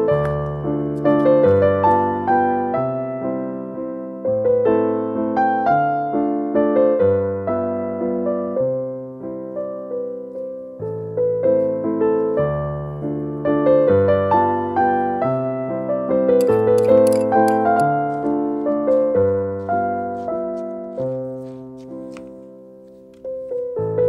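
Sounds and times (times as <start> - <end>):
gentle piano music: 0.0 - 24.0.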